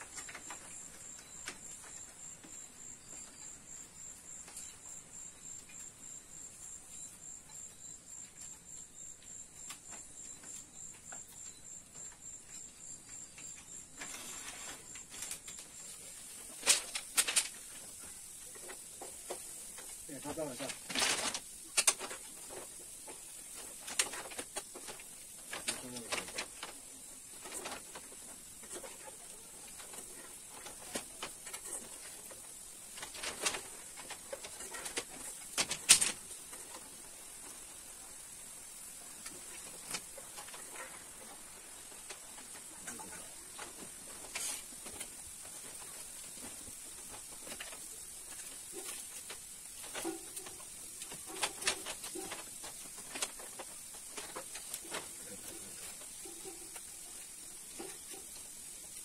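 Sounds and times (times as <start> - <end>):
steady high hiss: 0.0 - 59.0.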